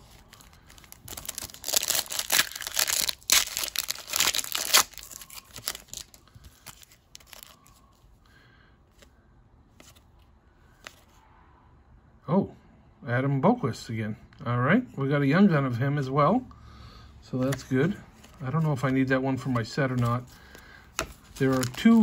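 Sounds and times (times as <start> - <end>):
foil wrapper tearing and crinkling: 0.0 - 7.6
cards rustling: 0.0 - 8.1, 17.4 - 22.0.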